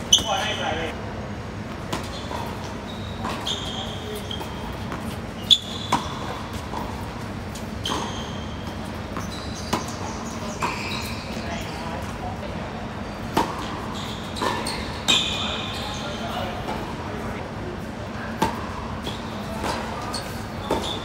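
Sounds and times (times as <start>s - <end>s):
shoes squeaking on court: 0.0s - 0.9s, 1.7s - 12.3s, 13.0s - 16.8s, 18.2s - 21.0s
tennis ball bouncing: 4.3s - 10.0s, 20.6s - 21.0s
racquets striking tennis ball: 18.4s - 21.0s.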